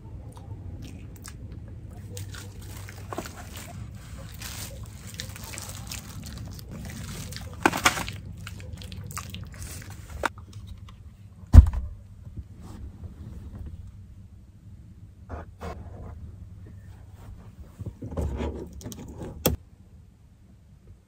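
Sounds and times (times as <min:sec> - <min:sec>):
low hum: 0:00.0 - 0:21.0
plastic glove and foil crinkling: 0:02.0 - 0:10.7
loud thump: 0:11.5 - 0:12.0.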